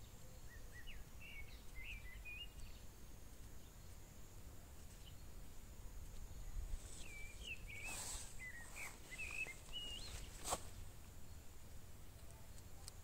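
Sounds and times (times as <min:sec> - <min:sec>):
low outdoor rumble: 0:00.0 - 0:13.0
songbird warbling: 0:06.8 - 0:10.6.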